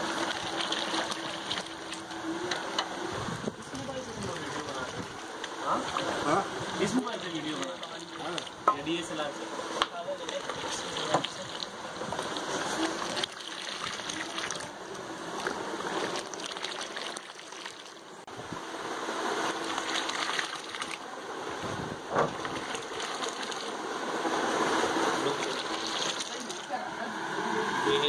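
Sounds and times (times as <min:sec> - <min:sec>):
milkshake splashing and trickling: 0:00.0 - 0:02.3, 0:03.4 - 0:09.1, 0:10.2 - 0:18.3, 0:19.5 - 0:21.0, 0:22.3 - 0:23.9, 0:24.6 - 0:26.9.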